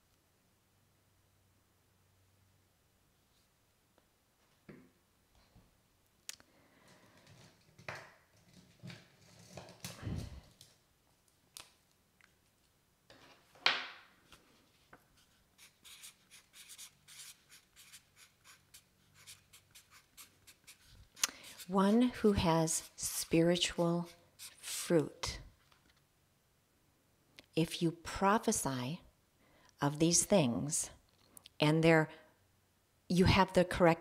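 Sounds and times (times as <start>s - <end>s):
rustling and handling noise: 6.8s - 24.8s
marker pen writing on paper: 15.2s - 24.9s.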